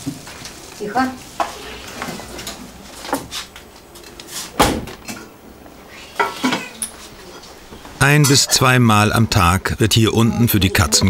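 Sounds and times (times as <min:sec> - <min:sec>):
pots and dishes clattering: 0:01.4 - 0:03.3, 0:06.2 - 0:08.6.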